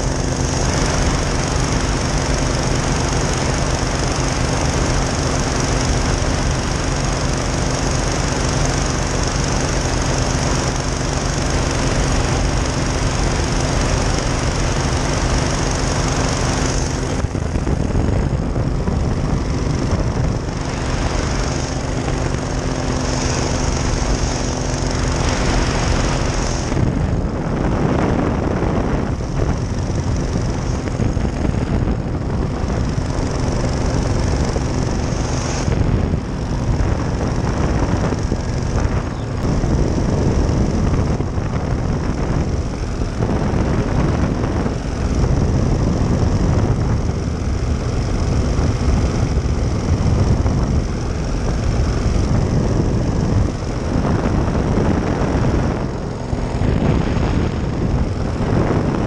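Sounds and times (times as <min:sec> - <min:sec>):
engine and propeller drone: 0:00.0 - 0:59.0
loud rushing noise: 0:00.0 - 0:59.0.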